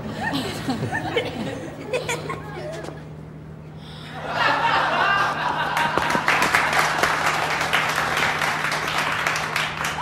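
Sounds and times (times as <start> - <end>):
audience applauding: 5.6 - 10.0.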